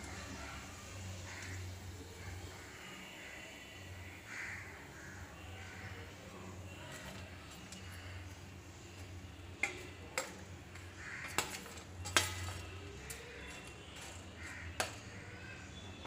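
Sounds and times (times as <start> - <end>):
metal kitchenware clinking: 11.2 - 14.2.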